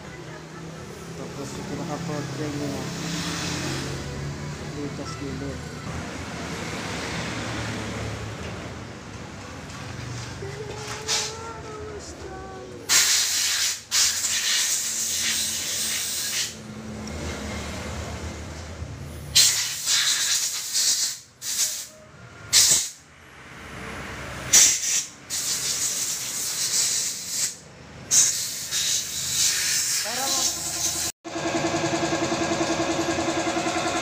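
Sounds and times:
aerosol spray can hissing: 0:12.9 - 0:16.6, 0:24.6 - 0:31.1.

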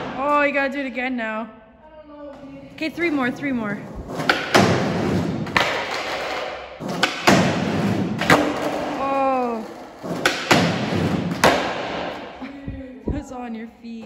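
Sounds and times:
skateboard wheels rolling on concrete: 0:02.3 - 0:12.4
skateboard clacks and thuds: 0:04.0 - 0:12.3.

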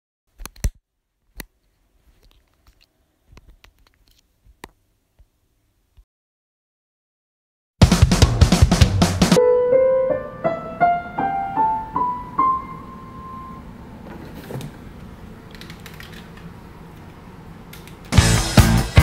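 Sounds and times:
drum-heavy rock music: 0:07.8 - 0:09.4, 0:18.1 - 0:19.0
digital piano rising scale: 0:09.3 - 0:13.8.

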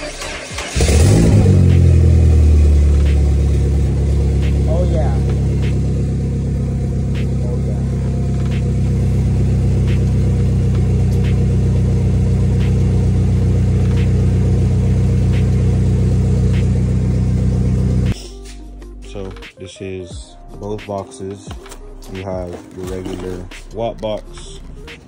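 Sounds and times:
car engine idling: 0:00.0 - 0:18.2.

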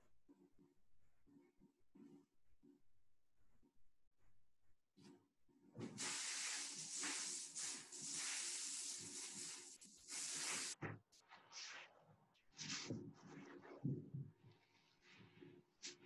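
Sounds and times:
rushing hiss: 0:06.0 - 0:10.8.

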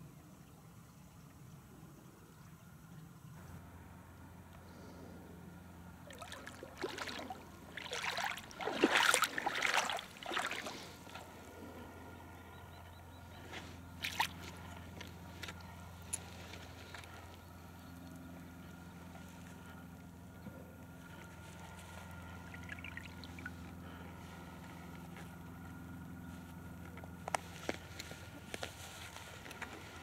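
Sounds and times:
water splashing and sloshing: 0:06.0 - 0:11.8, 0:13.9 - 0:17.1, 0:21.1 - 0:24.9.

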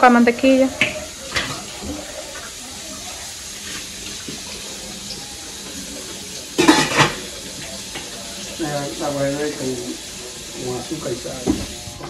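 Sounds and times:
pots hissing on stove: 0:00.0 - 0:12.0
pot lid clattering: 0:06.6 - 0:07.3.

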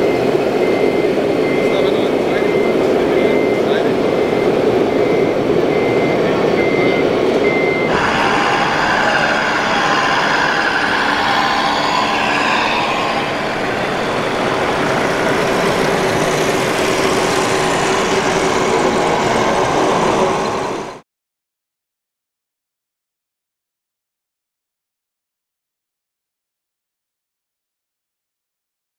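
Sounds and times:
electronic engine sound: 0:00.0 - 0:21.0
high reversing beeps: 0:00.0 - 0:21.0.

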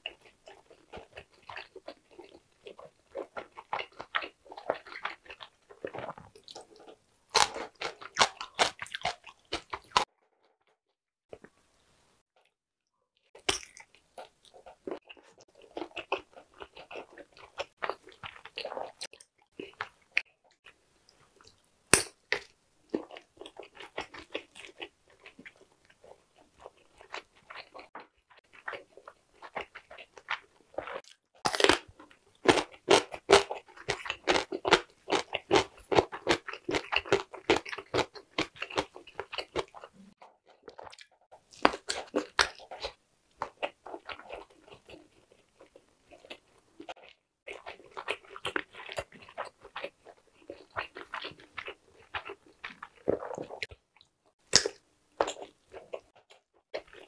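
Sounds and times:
biting and chewing: 0:00.0 - 0:10.1, 0:13.4 - 0:57.0
wet mouth clicks: 0:54.5 - 0:54.8.

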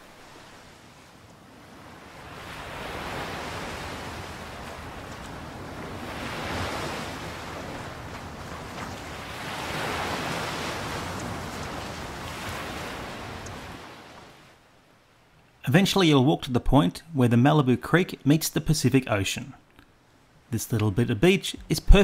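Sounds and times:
ocean waves breaking on beach: 0:00.0 - 0:15.2.

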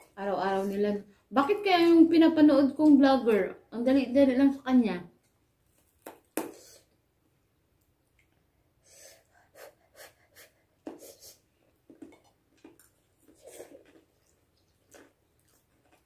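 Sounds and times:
sniffs and breaths: 0:08.8 - 0:11.6
eating mouth sounds: 0:11.9 - 0:16.0.

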